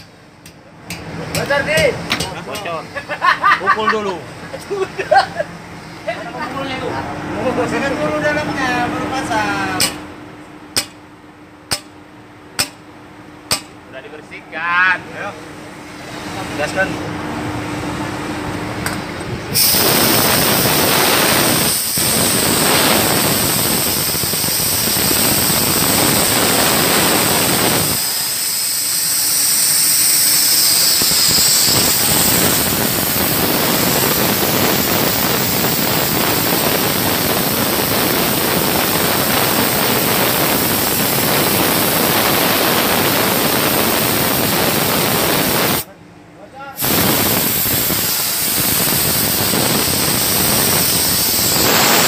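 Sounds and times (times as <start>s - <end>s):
compressed air hissing: 19.5s - 45.9s, 46.8s - 52.0s.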